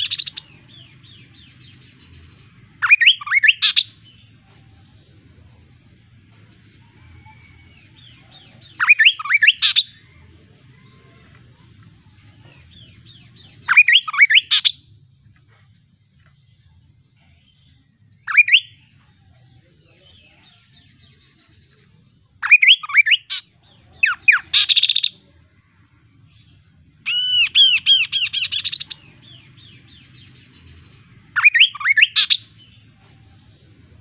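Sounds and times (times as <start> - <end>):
bird singing whistled notes: 0.0 - 4.4, 6.9 - 10.2, 12.7 - 14.9, 17.3 - 19.2, 19.9 - 25.3, 26.3 - 34.0.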